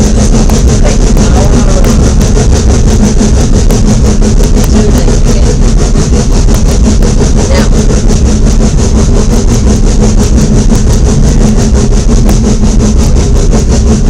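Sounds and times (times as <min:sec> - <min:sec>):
train mechanical hum: 0:00.0 - 0:14.0.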